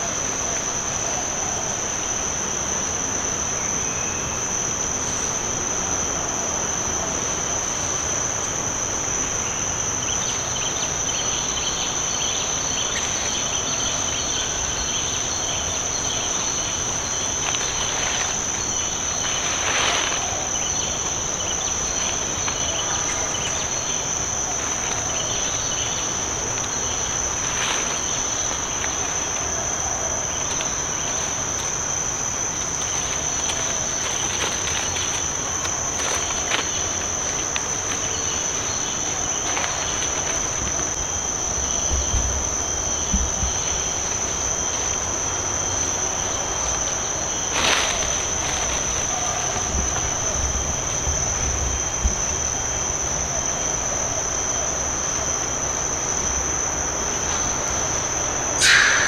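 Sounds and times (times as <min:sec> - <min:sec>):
insects chorus shrilling: 0:00.0 - 0:59.0.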